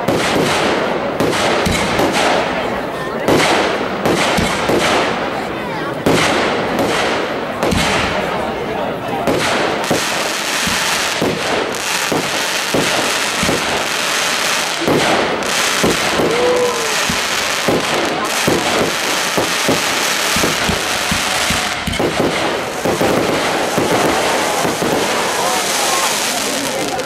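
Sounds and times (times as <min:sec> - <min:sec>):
fireworks crackling: 0:00.0 - 0:27.0
firework shells bursting: 0:09.2 - 0:27.0.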